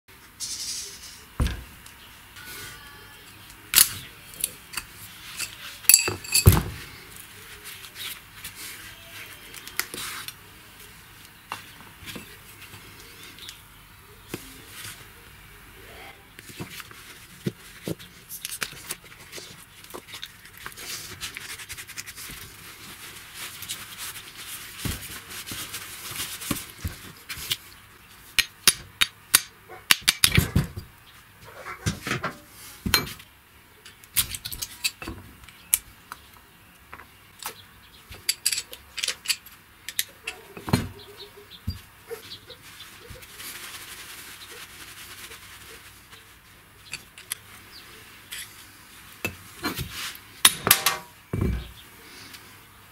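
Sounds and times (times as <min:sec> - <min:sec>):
metal tools clinking and scraping: 0:03.8 - 0:07.2, 0:38.2 - 0:40.8, 0:48.2 - 0:48.6, 0:50.5 - 0:51.7.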